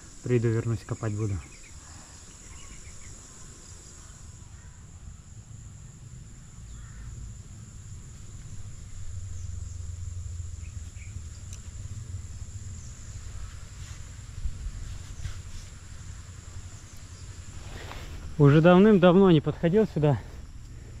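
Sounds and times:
insects chirring: 0.0 - 21.0
low rumble: 5.4 - 21.0.

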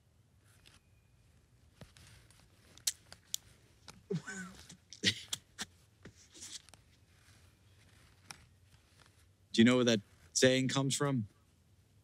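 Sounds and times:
cloth rustling: 0.4 - 4.0, 5.7 - 9.4
short vocal laugh or grunt: 4.1 - 5.7.

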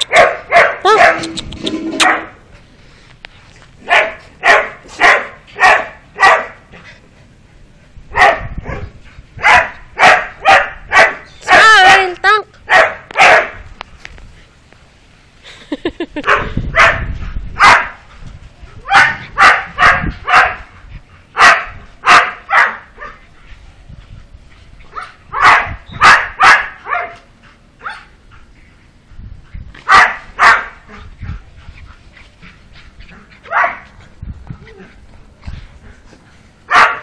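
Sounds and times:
puppy barking: 0.0 - 1.3, 3.9 - 6.6, 8.2 - 8.8, 9.4 - 12.1, 12.7 - 13.6, 16.2 - 17.0, 17.6 - 18.0, 18.9 - 20.7, 21.4 - 23.2, 24.9 - 27.2, 27.8 - 28.1, 29.9 - 30.8, 33.5 - 33.9, 36.7 - 37.0.

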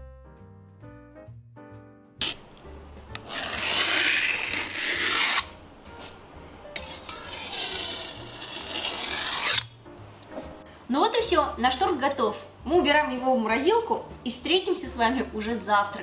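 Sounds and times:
faint background music: 0.0 - 16.0
rough rubbing scraping: 2.2 - 2.5, 3.1 - 6.2, 6.8 - 9.8.

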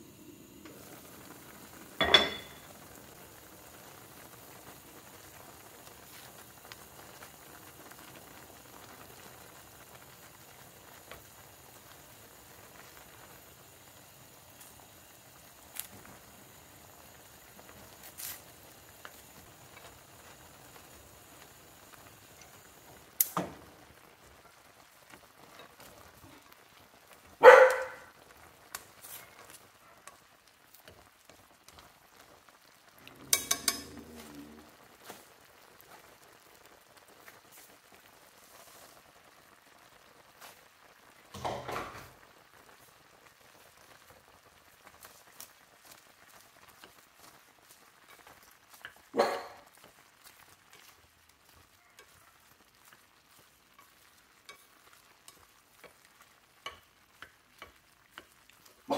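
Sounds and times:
broth bubbling: 32.9 - 35.0.

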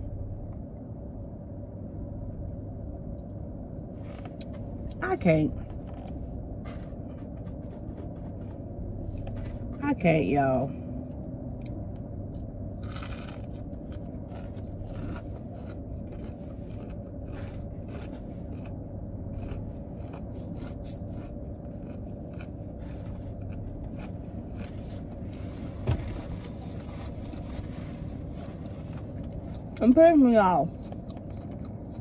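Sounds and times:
low hum in car cabin: 0.0 - 32.0
close-up chewing with crunches: 5.6 - 9.8, 11.1 - 32.0.

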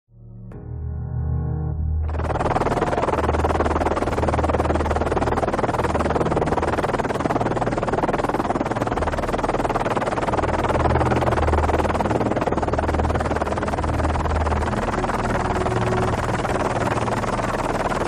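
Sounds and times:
low bass drone: 0.1 - 7.8, 10.4 - 18.0
synthesizer electronic music: 0.2 - 4.3.

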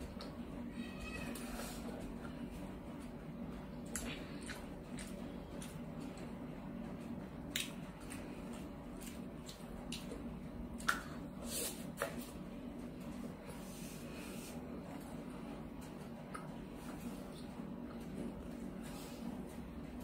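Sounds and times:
faint steady hum: 0.0 - 20.0
chewing mouth clicks and smacks: 3.9 - 6.3, 7.5 - 8.2, 10.8 - 11.2.

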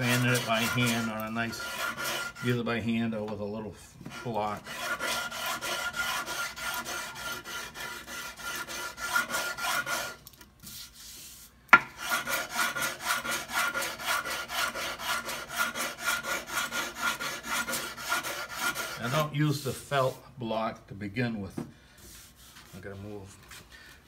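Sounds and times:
sandpaper rubbing on wood: 0.0 - 2.7, 4.1 - 20.2.

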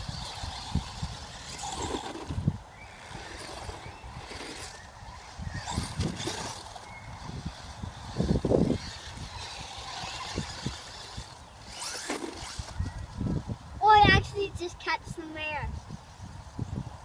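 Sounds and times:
toy truck motor whine: 0.0 - 13.2.

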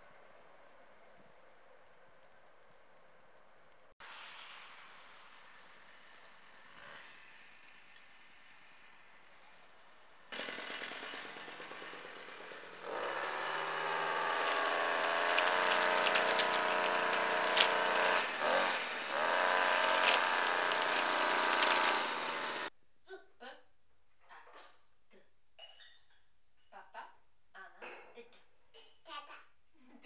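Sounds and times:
string trimmer cutting grass: 10.3 - 22.7.

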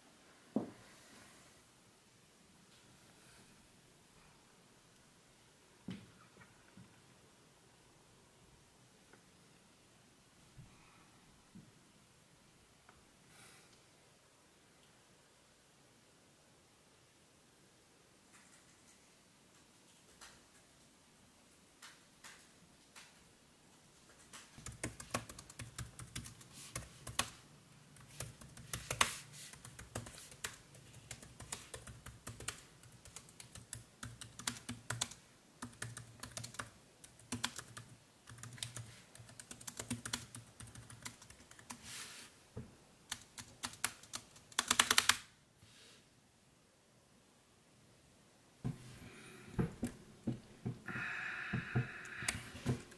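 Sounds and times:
typing on laptop keyboard: 24.2 - 27.4, 28.0 - 41.8, 43.1 - 45.3.

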